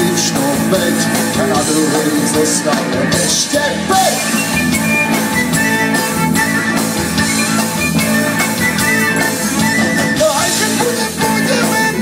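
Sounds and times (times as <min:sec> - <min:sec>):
drum kit: 0:00.0 - 0:12.0
electric guitar: 0:00.0 - 0:12.0
wooden flute melody: 0:04.0 - 0:12.0.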